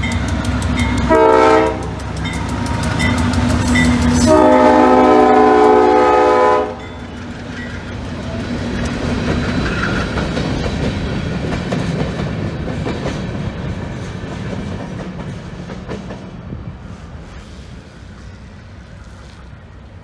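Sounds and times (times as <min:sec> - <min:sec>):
wheels clacking over rail joints: 0:00.0 - 0:04.4, 0:06.7 - 0:16.6
freight train rumbling past: 0:00.0 - 0:20.0
locomotive horn: 0:01.0 - 0:02.1, 0:03.7 - 0:06.9.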